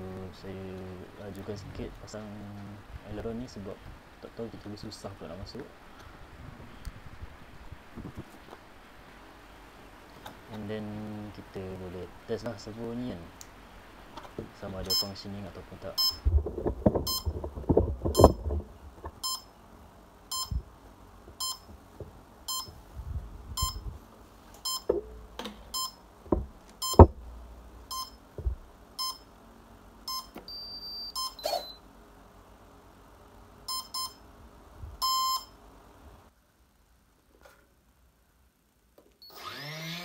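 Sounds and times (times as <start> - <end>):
short electronic beeps: 16.0 - 16.2, 19.2 - 19.5, 20.3 - 20.6, 21.4 - 21.7, 22.5 - 22.7, 23.6 - 23.8, 24.6 - 24.9, 25.7 - 26.0, 26.8 - 27.0, 27.9 - 28.2, 29.0 - 29.3, 30.1 - 31.8, 33.7 - 34.2, 35.0 - 35.6.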